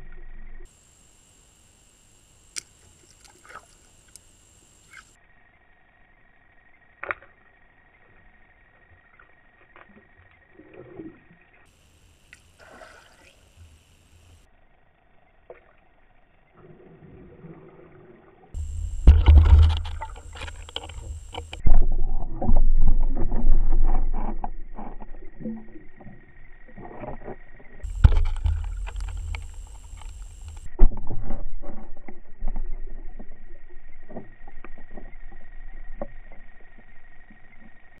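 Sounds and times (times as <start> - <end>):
faint steady high whine: 0.0 - 17.2, 18.0 - 38.0
soft low hum: 0.0 - 38.0
muffled underwater water noise: 2.3 - 38.0
small sharp clicks: 2.5 - 5.2, 27.8 - 30.7.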